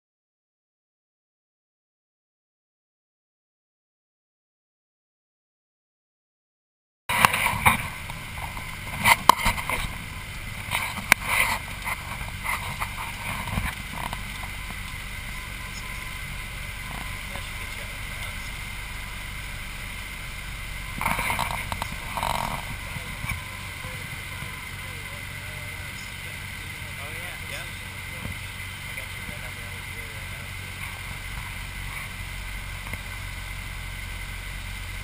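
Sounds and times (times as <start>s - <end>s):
airplane engine drone in cockpit: 7.1s - 35.0s.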